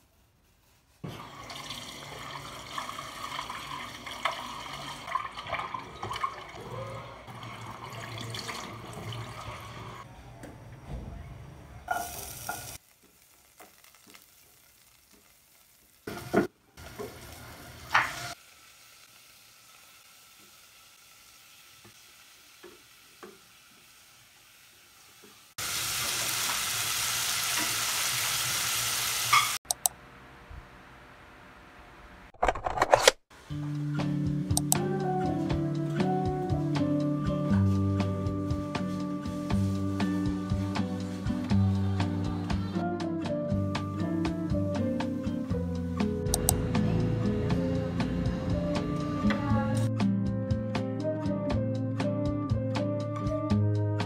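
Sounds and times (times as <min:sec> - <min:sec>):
food frying in a pan: 0:01.1 - 0:05.7, 0:11.9 - 0:29.6.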